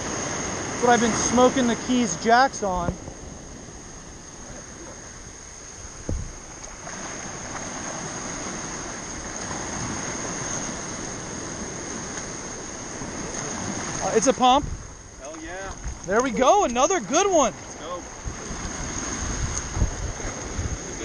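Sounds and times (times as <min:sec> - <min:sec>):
surf waves breaking on sand: 0:00.0 - 0:21.0
wind buffeting microphone: 0:00.0 - 0:21.0
brief thump: 0:06.1 - 0:06.3.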